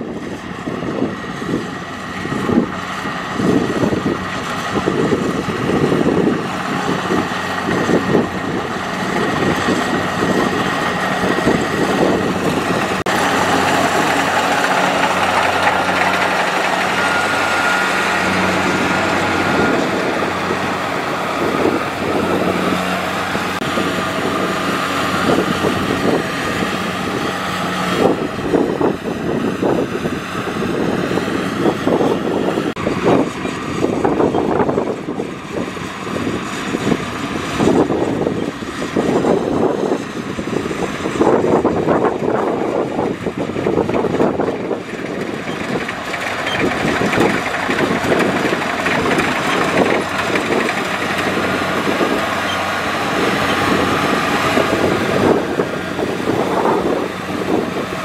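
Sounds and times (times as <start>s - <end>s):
combine harvester engine drone: 0.0s - 58.0s.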